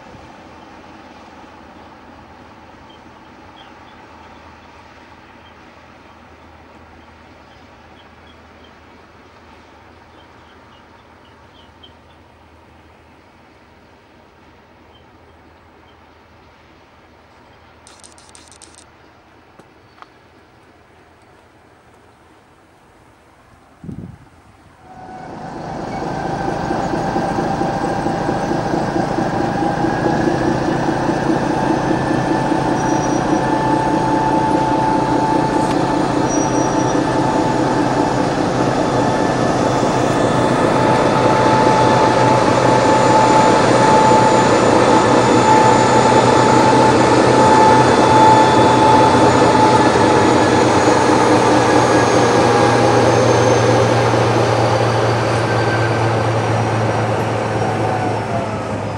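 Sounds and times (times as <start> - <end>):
wheels squealing: 24.8 - 58.6
locomotive diesel engine: 24.8 - 58.9.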